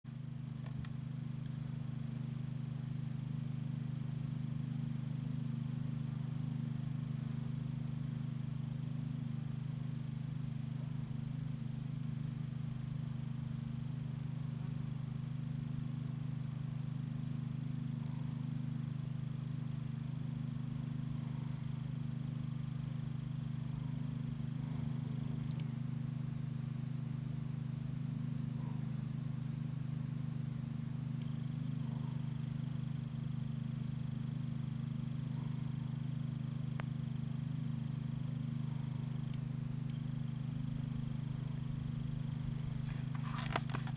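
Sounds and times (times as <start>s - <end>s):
steady low hum: 0.1s - 43.9s
faint bird chirps: 0.4s - 3.6s, 5.3s - 7.1s, 12.8s - 18.8s, 20.4s - 43.9s.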